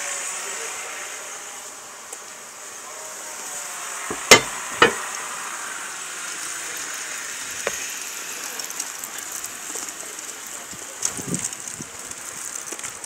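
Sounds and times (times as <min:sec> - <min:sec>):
high-pitched outdoor hiss: 0:00.0 - 0:13.0
sharp knock: 0:04.1 - 0:05.0.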